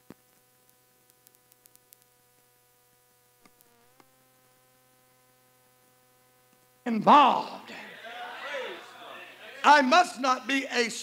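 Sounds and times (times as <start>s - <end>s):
faint steady hum: 0.0s - 11.0s
faint clicks: 0.1s - 2.1s.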